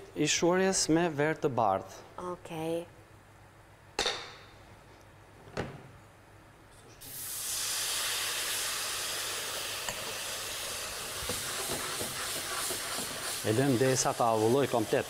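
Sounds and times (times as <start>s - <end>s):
wine sizzling in a hot pan: 7.0s - 15.0s.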